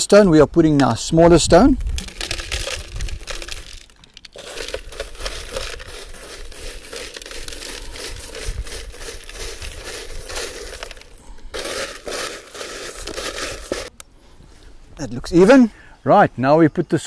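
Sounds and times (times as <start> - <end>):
gravel pouring onto stones: 1.6 - 13.9.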